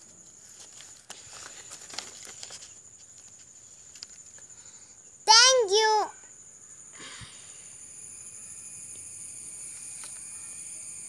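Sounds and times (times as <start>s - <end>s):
paper sheets rustling: 0.0s - 4.4s.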